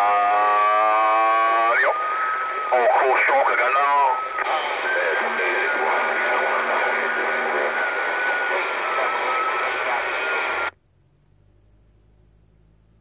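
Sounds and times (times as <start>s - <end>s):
radio static hiss: 0.0s - 10.8s
faint steady whistle: 7.6s - 10.7s.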